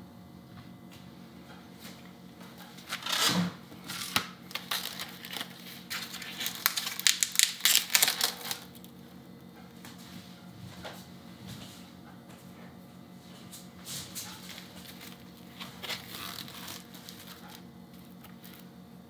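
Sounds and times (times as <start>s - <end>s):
plastic film crinkling and tearing: 2.9s - 8.9s, 14.4s - 18.7s.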